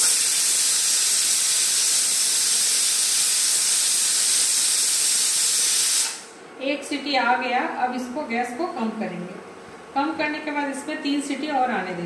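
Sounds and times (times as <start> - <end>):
pressure cooker whistle hissing: 0.0 - 6.3.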